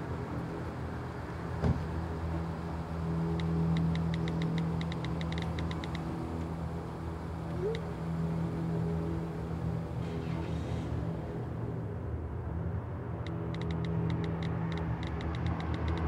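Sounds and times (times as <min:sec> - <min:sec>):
low vehicle hum: 0:00.0 - 0:16.0.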